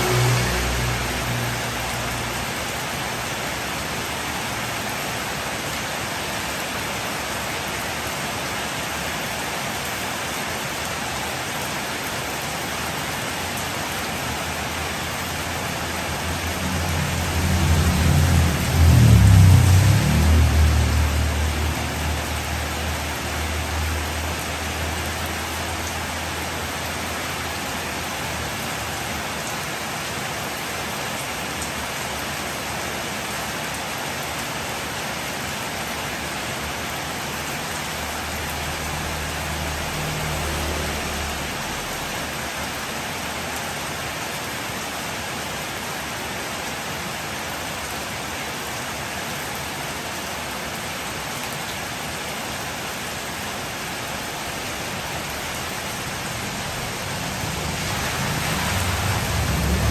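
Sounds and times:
motorbike passing: 0.0s - 2.5s, 14.8s - 27.2s, 37.5s - 42.6s, 53.9s - 59.9s
heavy rain on street: 0.0s - 59.9s.

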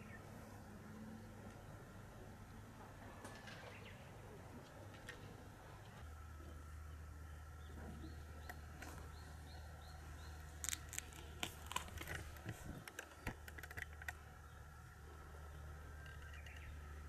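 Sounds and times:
low steady hum: 0.0s - 17.0s
faint bird chirps: 14.2s - 17.0s.

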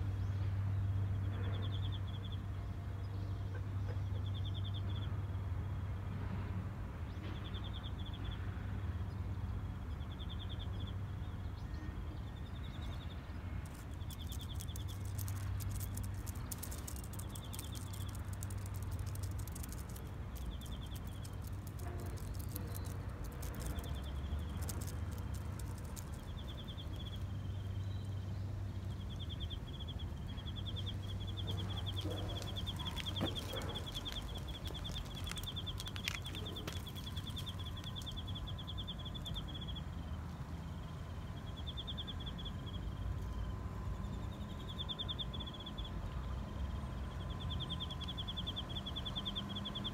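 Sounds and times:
light crackles: 13.6s - 39.5s.

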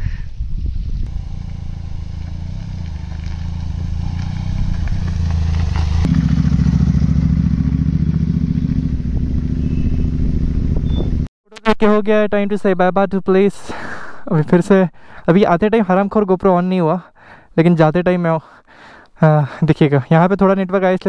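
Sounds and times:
motorcycle engine running: 0.7s - 11.3s.

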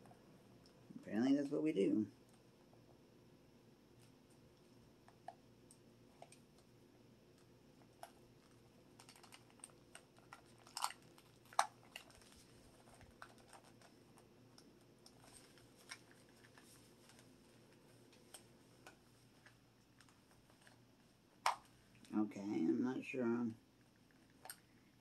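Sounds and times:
plastic cracking: 8.0s - 17.3s.

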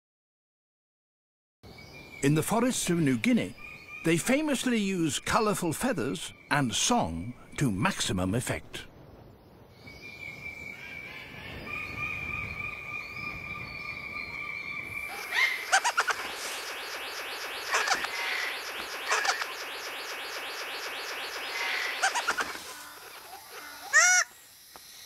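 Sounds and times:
bird sharp calls: 10.8s - 24.4s
bird buzzy descending notes: 15.0s - 23.9s
two steady high tones: 15.1s - 22.8s.

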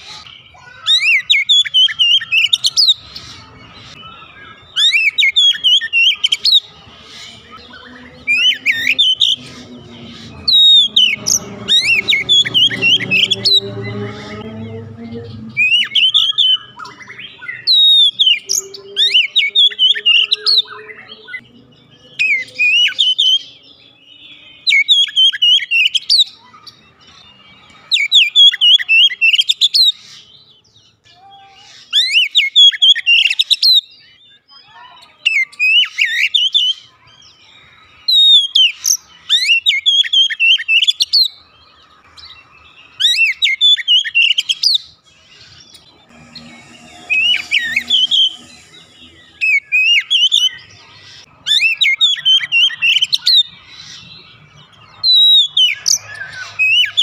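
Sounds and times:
bird singing whistled phrases: 0.1s - 3.0s, 15.6s - 21.4s.

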